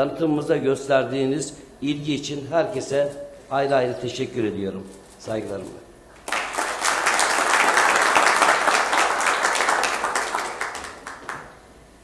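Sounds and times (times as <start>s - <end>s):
audience applauding: 6.2s - 11.5s.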